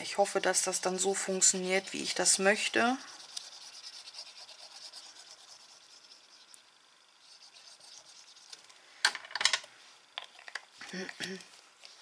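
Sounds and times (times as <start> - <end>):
glue rubbing on paper: 1.2 - 8.6.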